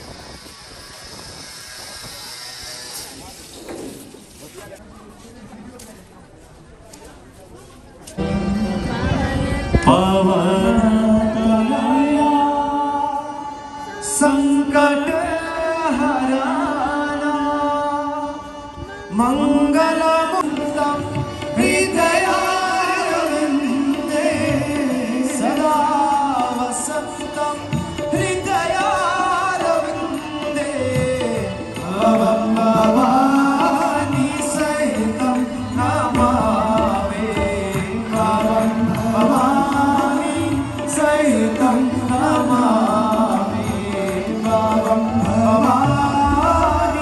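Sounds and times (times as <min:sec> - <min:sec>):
tabla: 0:00.0 - 0:04.8, 0:08.2 - 0:47.0
harmonium: 0:08.1 - 0:47.0
devotional singing: 0:08.2 - 0:47.0.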